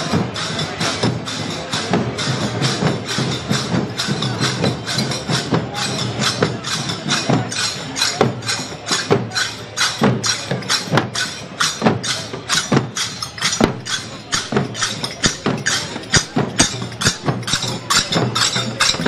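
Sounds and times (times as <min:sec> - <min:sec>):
brass percussion struck with sticks: 0:00.0 - 0:19.0
crowd noise: 0:00.0 - 0:19.0.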